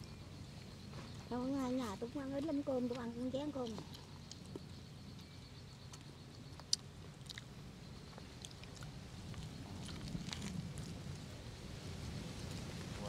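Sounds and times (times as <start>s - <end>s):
person chewing and biting: 5.9s - 7.5s.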